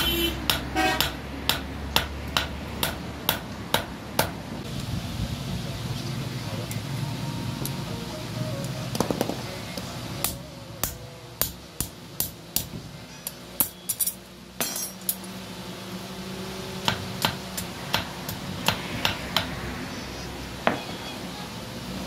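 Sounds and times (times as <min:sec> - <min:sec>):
hammer striking steel on anvil: 0:00.0 - 0:04.4, 0:10.2 - 0:15.2, 0:16.8 - 0:19.6.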